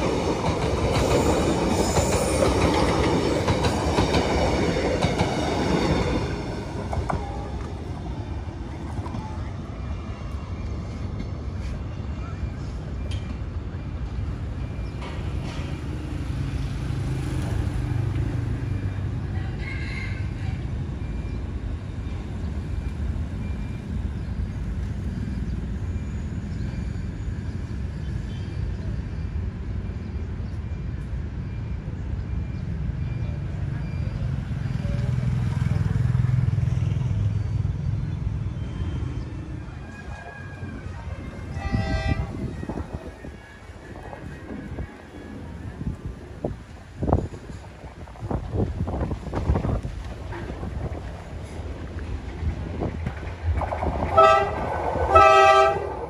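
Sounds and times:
train carriages rumbling: 0.0s - 56.0s
locomotive horn blast: 41.2s - 42.6s, 54.1s - 56.0s.

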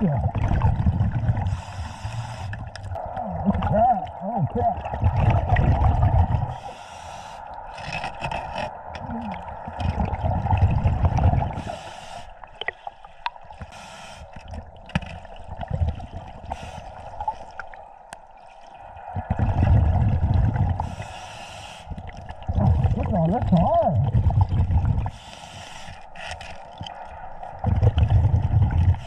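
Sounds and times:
bubbling exhales: 0.0s - 11.9s, 19.1s - 21.2s, 21.9s - 25.3s, 27.3s - 29.0s
diver breathing through regulator: 0.8s - 2.8s, 5.4s - 10.5s, 11.4s - 14.5s, 16.4s - 17.5s, 19.2s - 22.1s, 24.2s - 26.7s.

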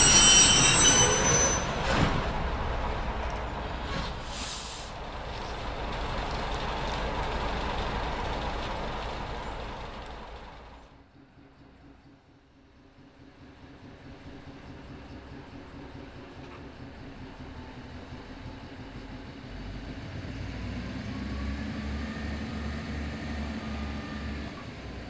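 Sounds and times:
steel wheels squealing on rails: 0.0s - 2.4s
train rumbling past: 0.0s - 25.0s
brief hiss: 3.9s - 5.0s.

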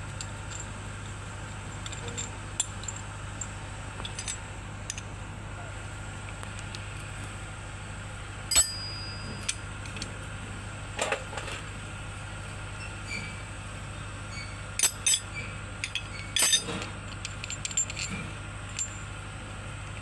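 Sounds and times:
steady low hum: 0.0s - 20.0s
spanners clinking on metal: 8.5s - 10.1s, 14.4s - 19.1s.

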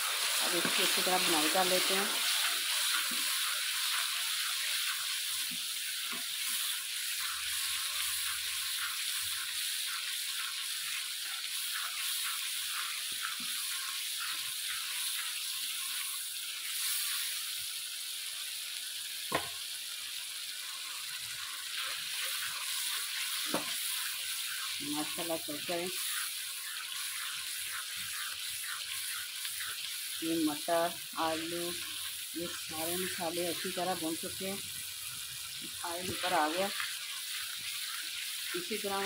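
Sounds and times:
food sizzling in a pan: 0.0s - 39.0s
spatula scraping and tapping pan: 23.4s - 24.8s, 26.0s - 29.9s.

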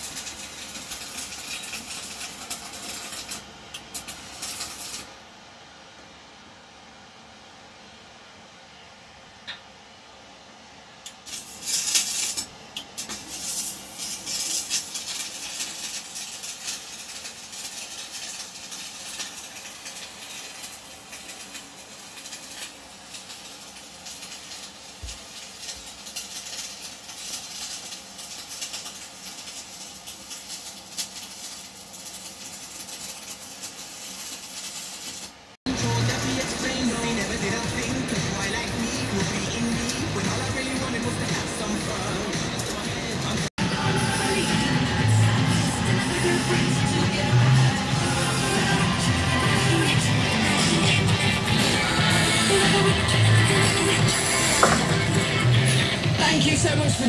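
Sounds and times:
welding arc crackling: 0.0s - 5.2s, 11.0s - 57.0s
ventilation hiss: 0.0s - 57.0s.

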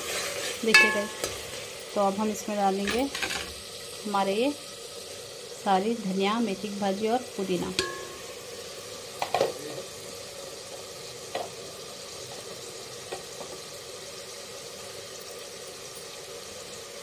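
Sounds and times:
sauce sizzling in a pot: 0.0s - 17.0s
sharp clinks against pot: 0.7s - 1.4s, 7.8s - 8.4s.

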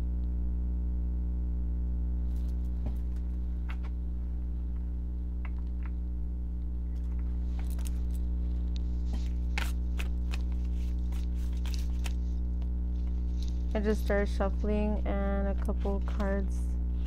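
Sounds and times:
low hum: 0.0s - 17.0s
cards being shuffled: 6.9s - 13.8s.

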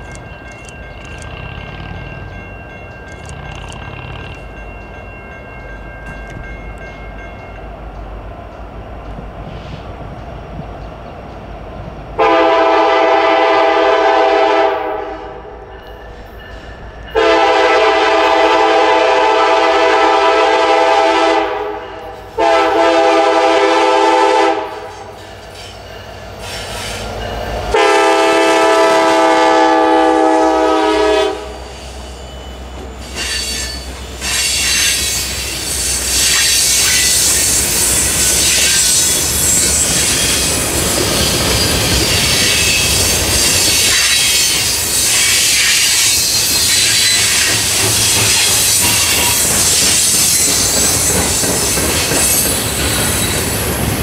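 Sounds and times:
train rumbling: 0.0s - 54.0s
locomotive air horn blasts: 12.2s - 15.6s, 17.2s - 25.1s, 27.7s - 31.7s.

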